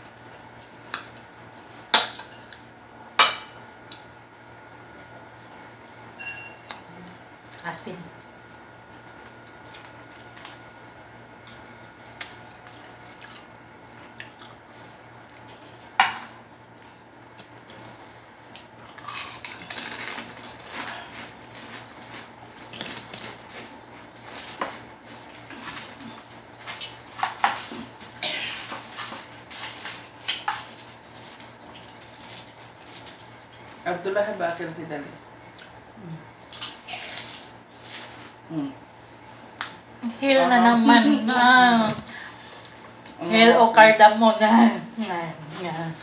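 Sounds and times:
aluminium foil crinkling: 0:18.9 - 0:34.0.

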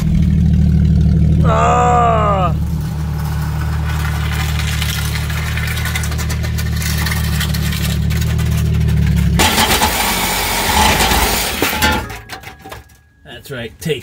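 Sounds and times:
engine low rumble: 0:00.0 - 0:14.0
clatter: 0:02.6 - 0:13.2.

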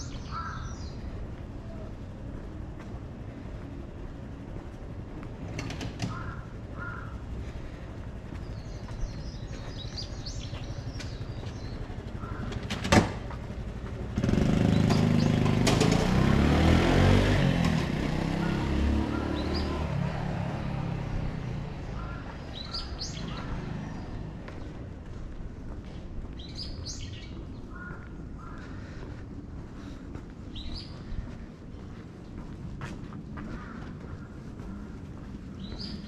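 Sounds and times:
small birds chirping: 0:00.0 - 0:02.0, 0:06.1 - 0:12.7, 0:14.2 - 0:15.6, 0:18.4 - 0:36.0
vehicle engine passing by: 0:02.8 - 0:26.8.

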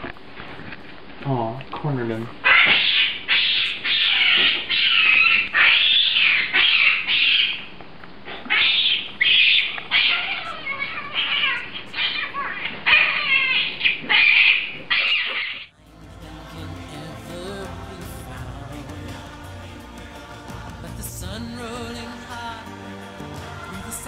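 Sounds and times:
baboon screaming: 0:02.4 - 0:07.7, 0:08.4 - 0:15.7.

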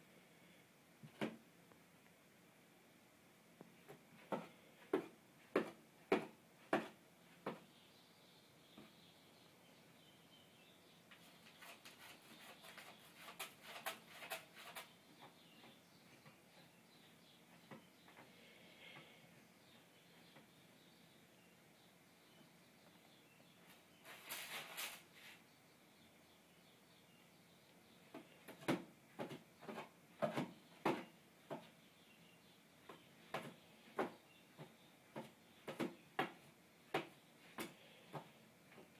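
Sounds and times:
cat claws scratching tiles: 0:11.4 - 0:14.9.

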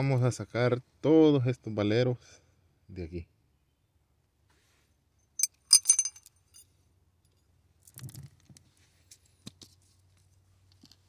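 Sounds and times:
metal balls clinking: 0:05.4 - 0:06.7.

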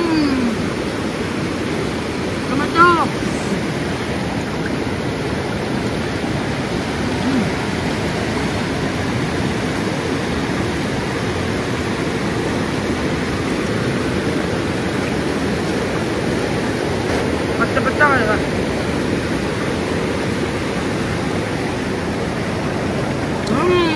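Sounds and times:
person shouting: 0:00.0 - 0:00.6, 0:02.6 - 0:03.6
river water rushing: 0:00.0 - 0:23.9.

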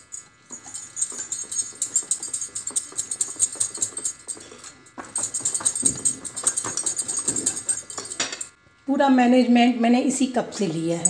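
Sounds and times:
whisk clicking against glass bowl: 0:00.0 - 0:08.6.

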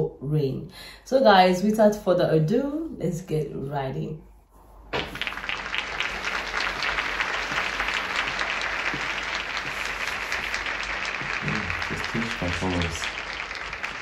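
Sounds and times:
audience applauding and cheering: 0:05.0 - 0:14.0.

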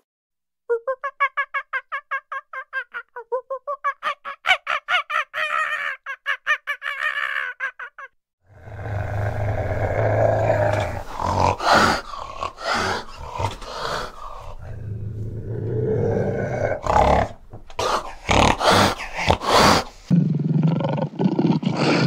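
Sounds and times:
animal growling: 0:08.5 - 0:22.0.

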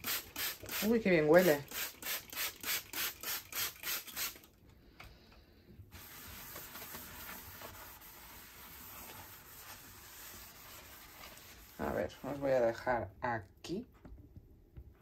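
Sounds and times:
faint rubbing: 0:05.9 - 0:12.8
scrubbing steel sink: 0:05.9 - 0:12.8.

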